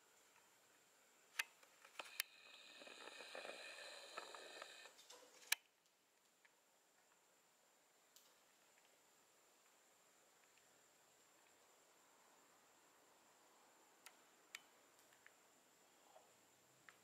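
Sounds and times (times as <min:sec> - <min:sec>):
sharp camera clicks: 0:01.9 - 0:05.6
zoom lens motor whirring: 0:02.0 - 0:05.0.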